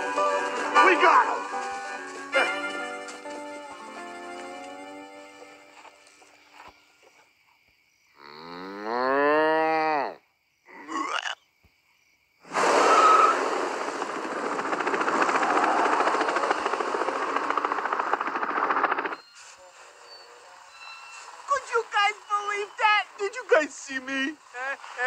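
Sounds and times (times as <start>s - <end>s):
cow mooing: 8.2s - 10.2s
helicopter rushing noise: 12.6s - 19.3s
cars passing: 20.5s - 25.0s.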